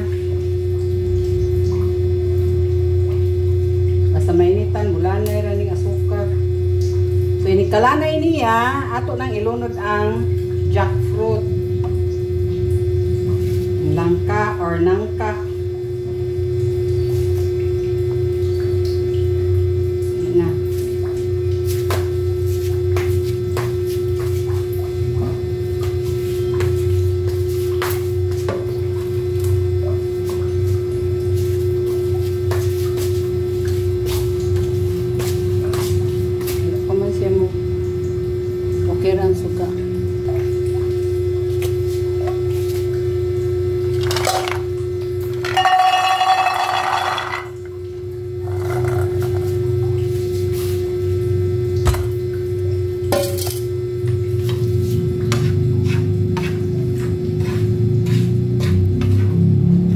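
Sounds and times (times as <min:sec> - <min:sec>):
deep machine hum with tone: 0:00.0 - 0:59.9
food pieces tipped into metal pan: 0:45.4 - 0:47.5
bowl clink: 0:45.4 - 0:47.6.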